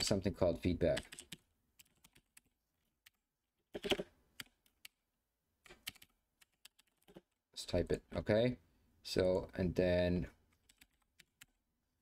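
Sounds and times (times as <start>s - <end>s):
keyboard typing clicks: 5.6s - 7.4s.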